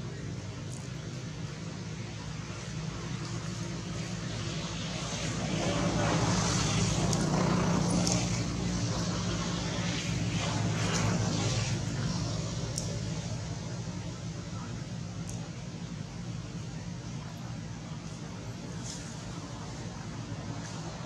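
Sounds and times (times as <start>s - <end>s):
low engine drone: 0.0s - 21.0s
faint clicks: 12.7s - 13.0s, 15.2s - 15.5s.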